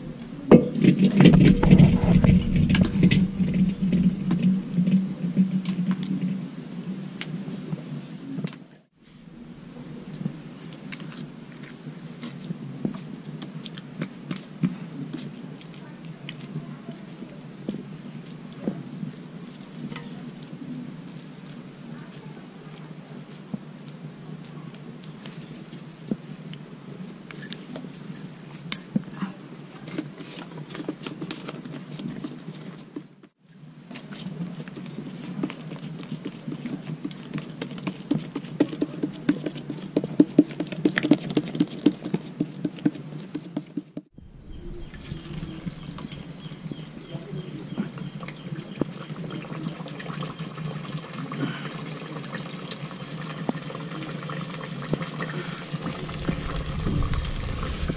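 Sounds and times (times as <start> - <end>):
food deep-frying in hot oil: 48.0 - 57.4.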